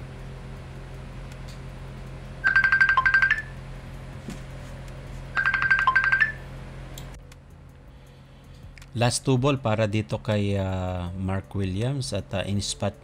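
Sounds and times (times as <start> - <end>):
steady low hum: 0.0 - 13.0
electronic ringtone trilling: 2.4 - 3.6, 5.4 - 6.5.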